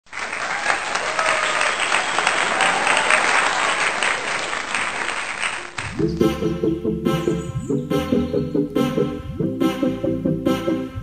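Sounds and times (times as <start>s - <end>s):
crowd applause: 0.0s - 6.0s.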